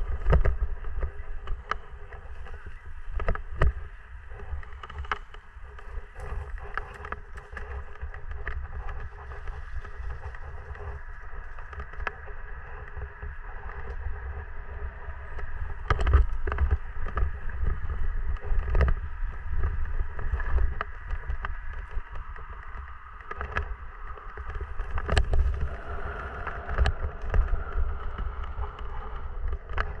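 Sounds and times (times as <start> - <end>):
wind and vibration rumble: 0.0 - 30.0.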